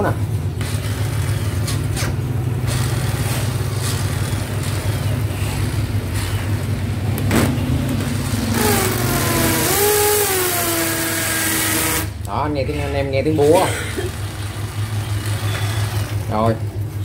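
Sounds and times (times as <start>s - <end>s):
motor whine: 0.0s - 12.4s, 13.4s - 17.0s
hammer drill rattling: 8.4s - 12.1s.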